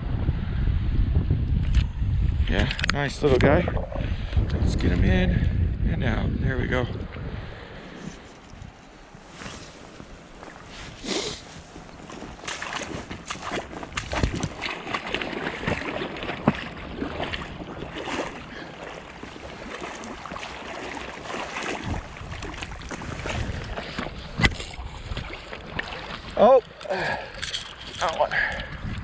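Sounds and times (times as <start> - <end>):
river water splashing: 9.4 - 28.2.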